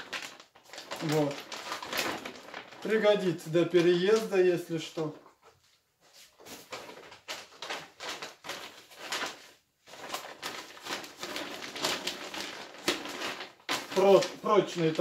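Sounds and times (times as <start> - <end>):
plastic bag rustling and crinkling: 0.0 - 15.0.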